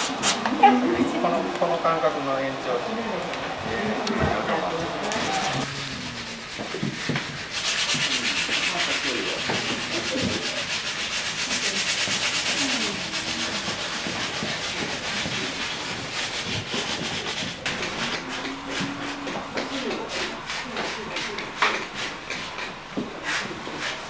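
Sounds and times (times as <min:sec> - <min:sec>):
murmured voices: 0:00.4 - 0:06.7, 0:11.4 - 0:15.7, 0:17.6 - 0:22.6
scratchy rubbing on surface: 0:05.0 - 0:24.0.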